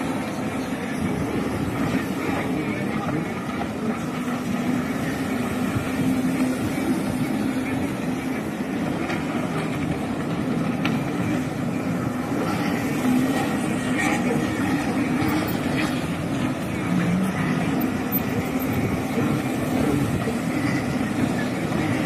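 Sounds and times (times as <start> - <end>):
jet ski engines droning: 0.0 - 22.0.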